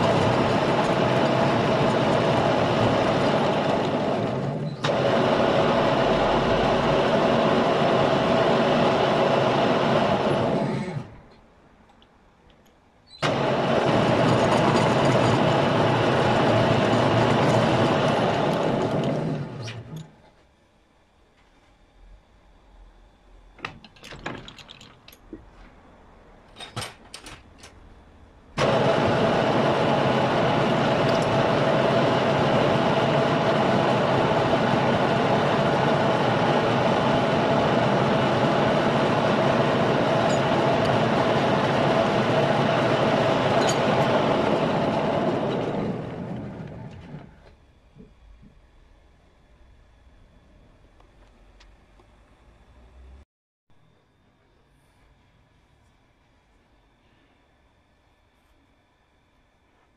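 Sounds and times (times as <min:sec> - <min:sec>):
metal lathe running: 0:00.0 - 0:11.1, 0:13.2 - 0:20.1, 0:28.6 - 0:47.4.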